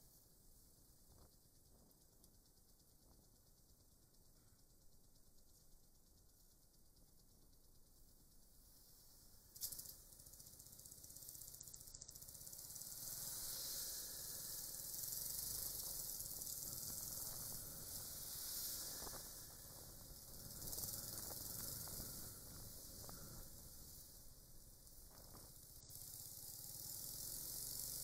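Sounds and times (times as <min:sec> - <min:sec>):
faint low rumble: 0:00.0 - 0:26.7
wind and riding noise: 0:13.6 - 0:25.9.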